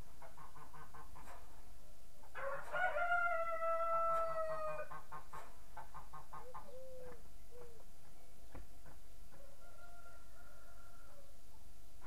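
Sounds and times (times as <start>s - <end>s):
rooster crowing: 2.4s - 4.9s, 9.4s - 11.3s.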